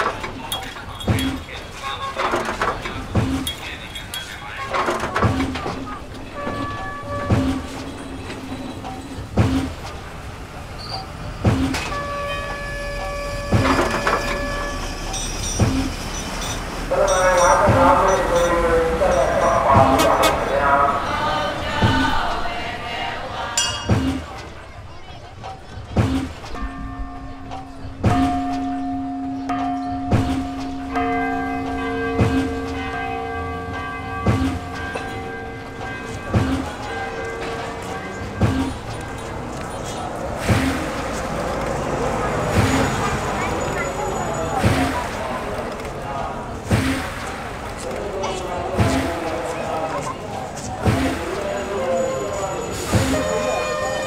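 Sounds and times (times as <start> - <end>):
metallic clanks of railway cars: 0.0 - 54.0
large bell struck with wooden striker: 0.5 - 4.3, 23.6 - 24.5, 26.4 - 39.6
second bell tone: 23.6 - 24.1, 50.9 - 54.0.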